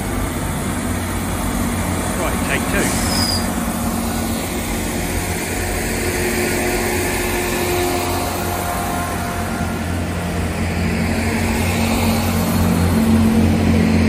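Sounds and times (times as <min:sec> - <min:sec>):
diesel train engine drone: 0:00.0 - 0:14.0.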